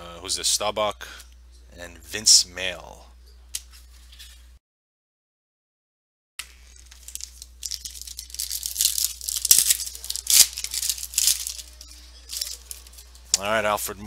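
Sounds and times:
foil pack tearing and crinkling: 0:06.4 - 0:13.1.

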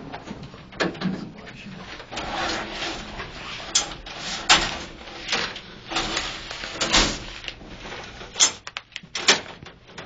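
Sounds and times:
rustling and sliding: 0:01.7 - 0:08.4.

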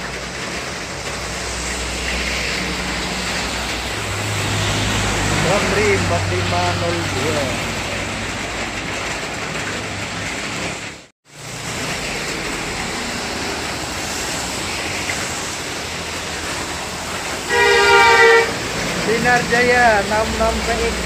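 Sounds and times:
heavy rain hissing: 0:00.0 - 0:21.0
passing traffic: 0:00.0 - 0:21.0
tyres on wet road: 0:00.0 - 0:21.0
loud bus horn: 0:17.5 - 0:18.7.

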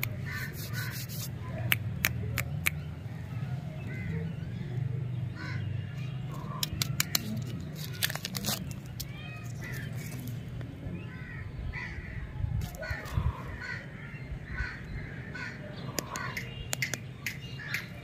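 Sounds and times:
birds calling: 0:00.0 - 0:18.0
wrapper crinkling and tearing: 0:06.6 - 0:10.4.

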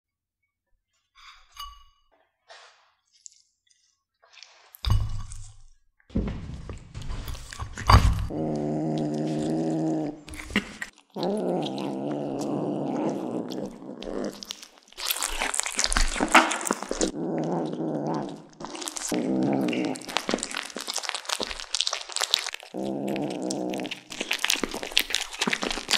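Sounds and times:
kitten growling: 0:08.0 - 0:25.9
kittens chewing raw meat: 0:08.3 - 0:25.9.

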